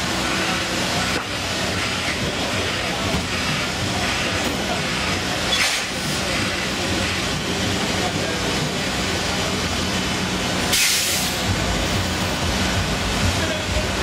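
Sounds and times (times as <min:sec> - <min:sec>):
torch burning with hiss: 0:10.7 - 0:11.5.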